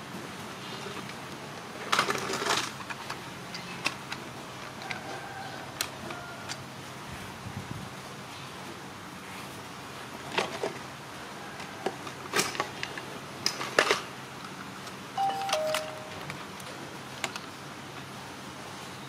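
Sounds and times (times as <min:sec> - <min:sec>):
two-note falling chime: 0:15.2 - 0:16.4.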